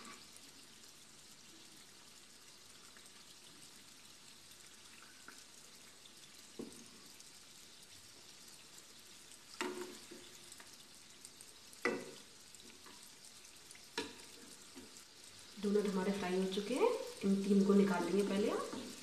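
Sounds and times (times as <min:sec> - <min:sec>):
oil sizzling: 0:00.0 - 0:19.0
metal spatula knocking on pan: 0:11.8 - 0:12.2.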